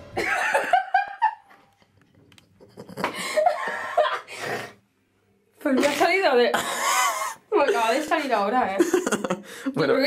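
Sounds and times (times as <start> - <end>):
woman laughing: 0.2 - 1.6, 6.6 - 10.0.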